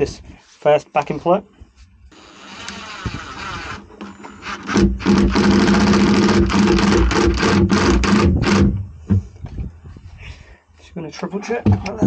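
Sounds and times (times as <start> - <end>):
cordless drill driving screw: 2.2 - 8.8.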